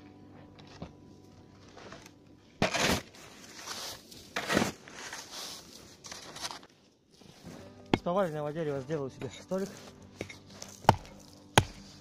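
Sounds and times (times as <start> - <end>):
snow crunching under shovel: 2.6 - 12.0.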